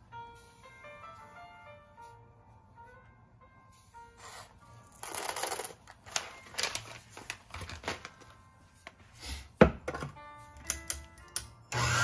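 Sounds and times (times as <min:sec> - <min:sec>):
paper bag crinkling: 0:05.0 - 0:08.5.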